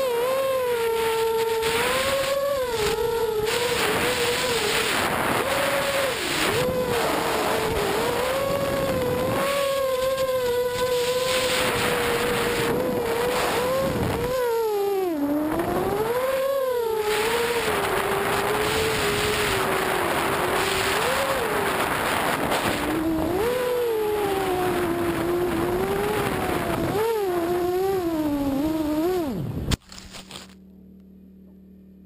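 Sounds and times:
drone motors whining: 0.0 - 31.1
faint steady hum: 0.0 - 32.0.

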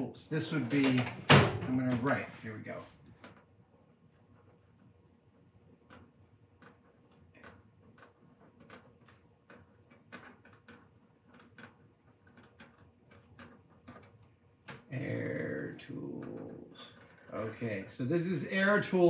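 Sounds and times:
marker pen writing: 3.3 - 14.4.

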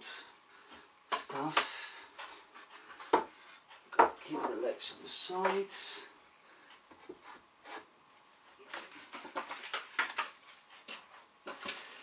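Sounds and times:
packaging rustling: 8.6 - 12.0.

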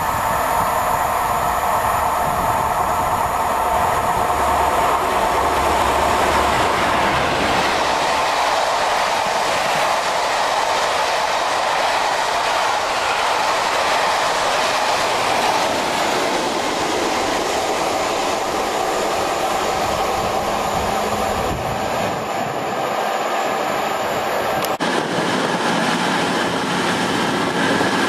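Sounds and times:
train wheels on rail: 0.0 - 28.0
clickety-clack over rail joints: 5.6 - 18.5.

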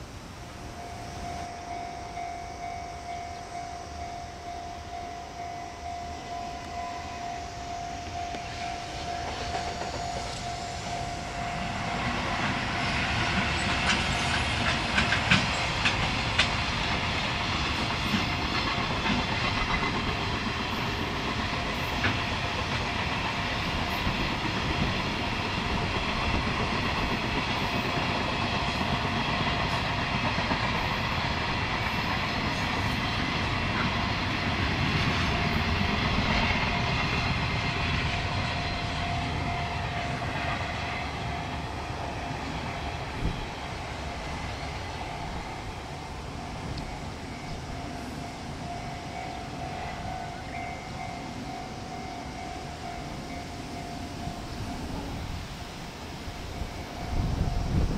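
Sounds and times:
train wheels rumbling on rail: 0.0 - 57.9
wind on microphone: 54.2 - 57.9.

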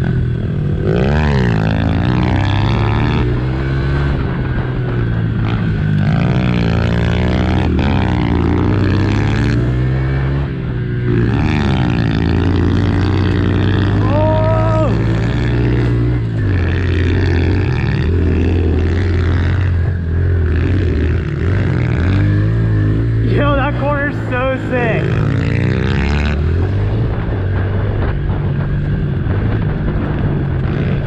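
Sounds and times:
engines revving: 0.0 - 31.0
pit bike engines droning: 0.0 - 31.0.

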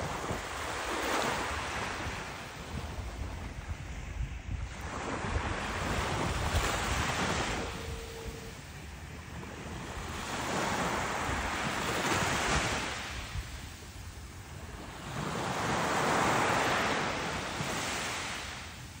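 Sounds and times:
wind rumble on microphone: 0.0 - 19.0
surf breaking on beach: 4.6 - 8.7.

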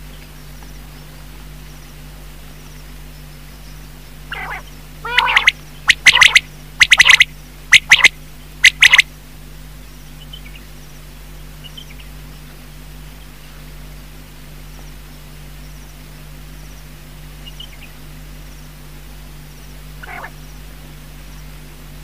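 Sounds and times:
steady low hum: 0.0 - 22.0
quail calling: 4.3 - 9.1, 20.0 - 20.5.

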